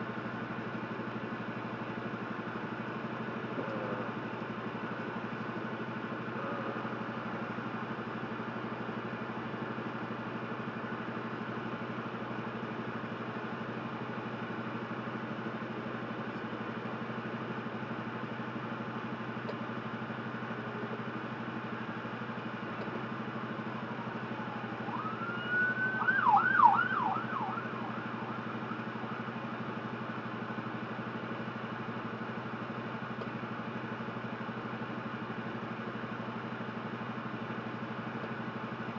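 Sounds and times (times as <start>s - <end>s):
truck engine idling: 0.0s - 38.9s
emergency vehicle siren: 23.4s - 30.6s.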